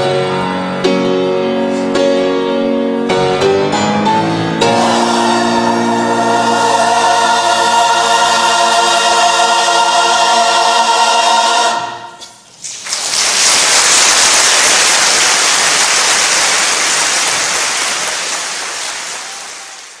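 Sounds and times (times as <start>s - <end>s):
choir holding a chord: 3.6s - 12.2s
audience applause: 12.6s - 20.0s.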